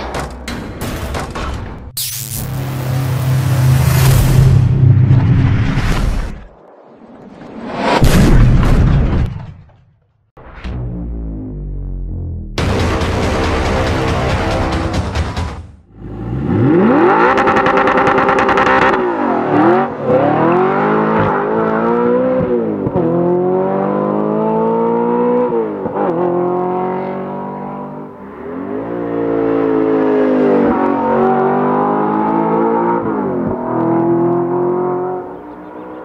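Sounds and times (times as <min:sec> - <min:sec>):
car engine revving: 0:15.9 - 0:36.0.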